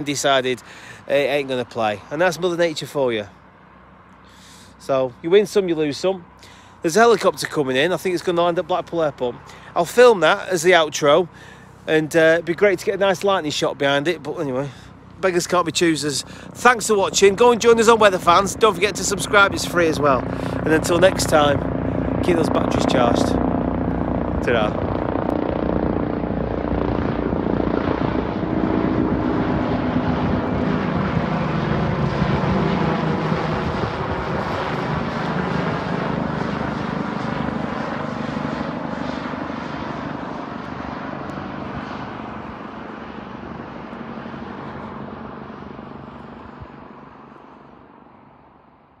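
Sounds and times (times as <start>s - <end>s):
helicopter flying past: 0.0s - 49.0s.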